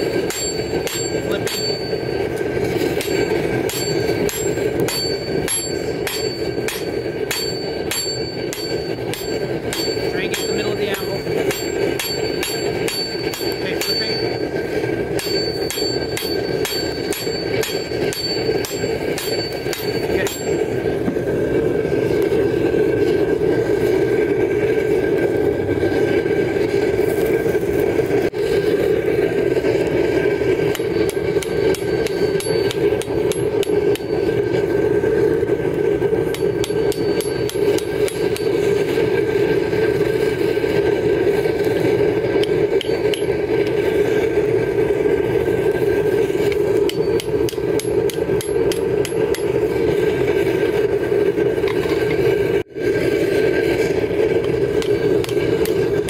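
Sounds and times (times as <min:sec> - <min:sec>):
hammer striking steel on anvil: 0:00.0 - 0:21.3, 0:29.9 - 0:34.8, 0:36.2 - 0:39.0, 0:41.6 - 0:43.9, 0:46.4 - 0:50.0, 0:54.4 - 0:56.0
steady rushing noise: 0:00.0 - 0:56.0.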